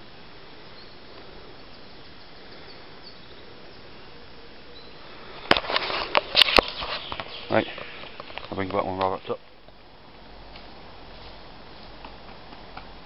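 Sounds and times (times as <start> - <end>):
faint bird chirps: 0.6 - 5.3, 6.6 - 8.4
sharp knocks and rustles: 5.4 - 9.3.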